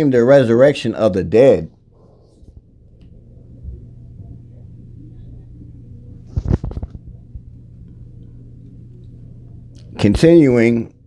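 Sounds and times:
steady low hum: 0:00.0 - 0:11.0
rustling noise: 0:06.2 - 0:07.2.

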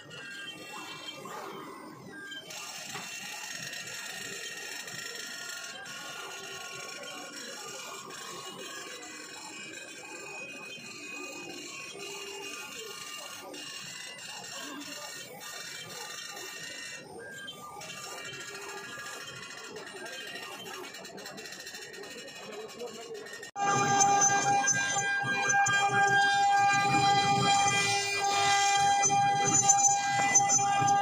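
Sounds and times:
router spindle whine: 0:10.6 - 0:31.0.

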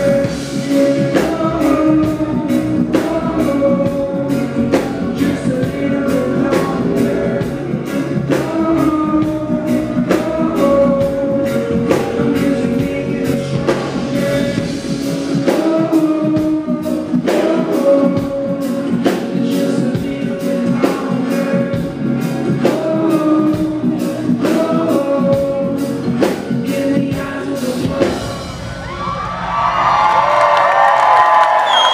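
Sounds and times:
man singing: 0:00.0 - 0:28.6
live reggae band playing: 0:00.0 - 0:30.1
crowd cheering and whooping: 0:28.5 - 0:31.9.

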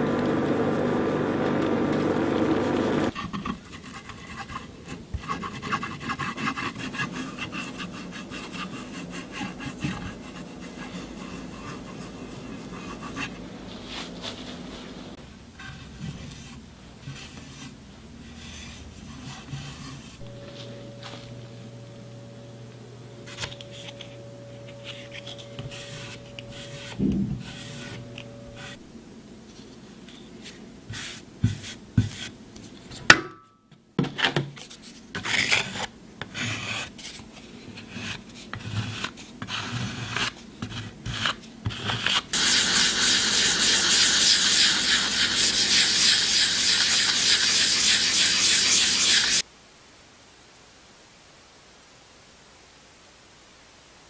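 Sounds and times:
hand tool scraping wooden panel: 0:23.3 - 0:28.8, 0:38.0 - 0:49.4.

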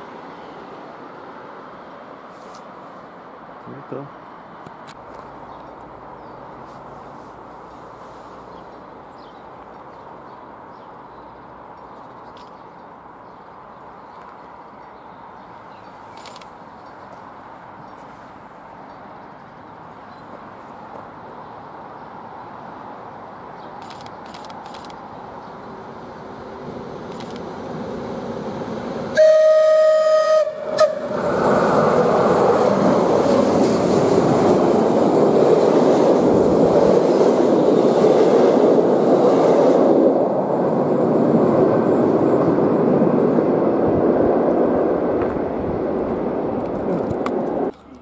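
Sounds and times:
train passing with rushing noise: 0:00.0 - 0:47.8
train horn blasts: 0:29.2 - 0:31.2.

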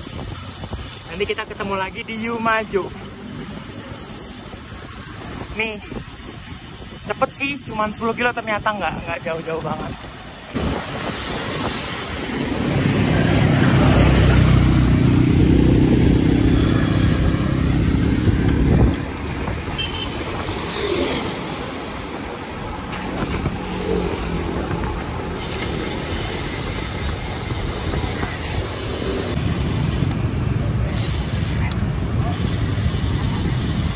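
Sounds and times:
traffic and road noise: 0:00.0 - 0:33.9
motor vehicle engine close by: 0:10.6 - 0:22.0, 0:22.7 - 0:33.9.

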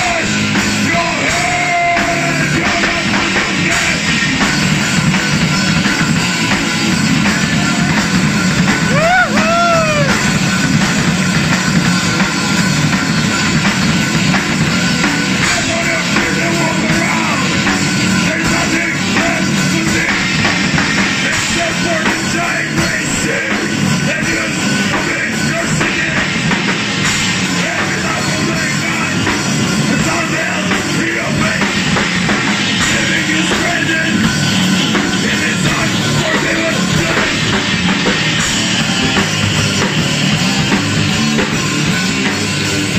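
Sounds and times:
bass guitar: 0:00.0 - 0:42.9
drum kit: 0:00.0 - 0:42.9
electric guitars: 0:00.0 - 0:42.9.

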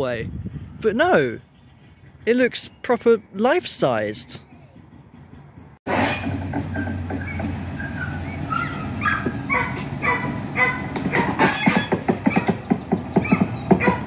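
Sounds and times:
diesel locomotive running: 0:03.4 - 0:14.0.

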